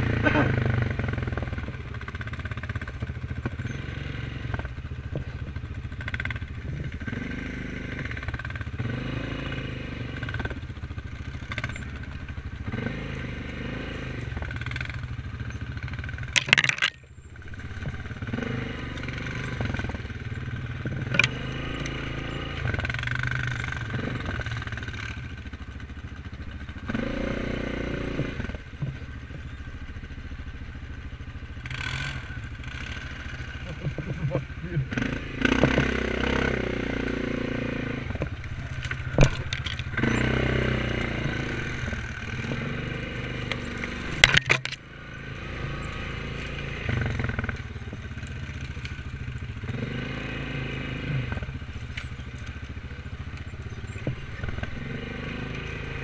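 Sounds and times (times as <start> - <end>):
atv engine running: 0.0 - 56.0
rattles and knocks: 15.9 - 18.2, 38.2 - 40.1, 43.5 - 44.8.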